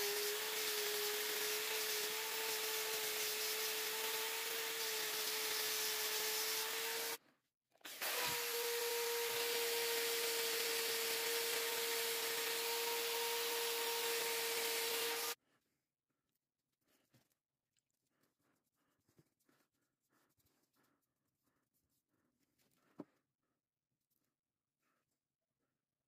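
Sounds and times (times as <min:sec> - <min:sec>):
sanding wheel rubbing wood: 0:00.0 - 0:07.2, 0:08.1 - 0:15.4
electric drill motor whine: 0:07.8 - 0:15.4.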